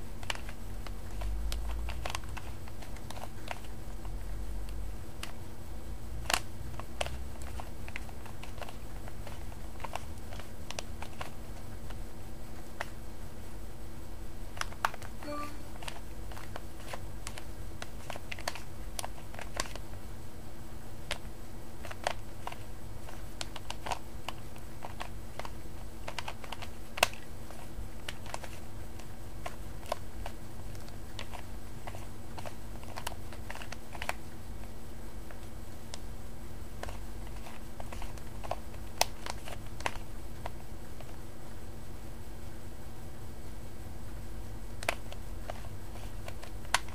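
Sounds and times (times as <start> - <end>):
puzzle cube clicking: 0.2 - 3.7, 6.2 - 12.0, 21.8 - 28.6, 44.8 - 46.9.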